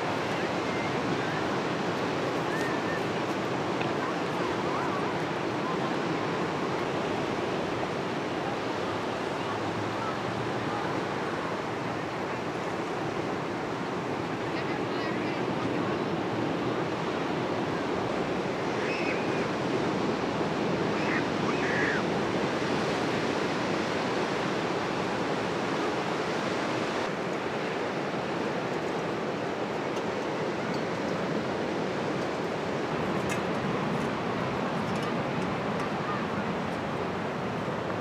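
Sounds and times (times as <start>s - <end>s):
ocean surf breaking: 0.0s - 38.0s.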